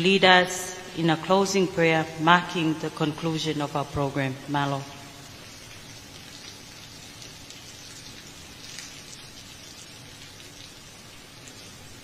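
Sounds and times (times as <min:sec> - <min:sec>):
rain hissing: 0:04.4 - 0:12.0
faint raindrop ticks: 0:04.9 - 0:12.0.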